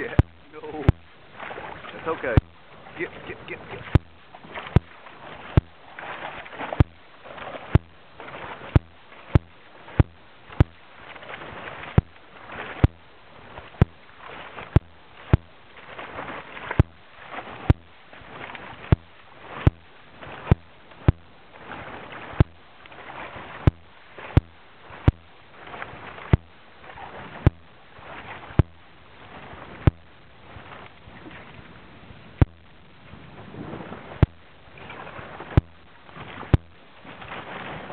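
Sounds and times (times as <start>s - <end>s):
sharp clicks: 0.0s - 1.2s, 3.5s - 5.8s, 6.7s - 7.1s, 7.7s - 8.1s, 8.7s - 10.9s, 14.7s - 15.6s, 17.7s - 18.0s, 18.8s - 21.4s, 22.4s - 22.7s, 29.8s - 30.2s.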